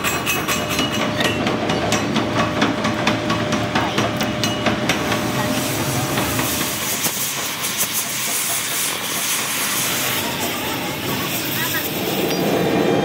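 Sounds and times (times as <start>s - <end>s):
cutting torch hissing: 4.9s - 13.0s.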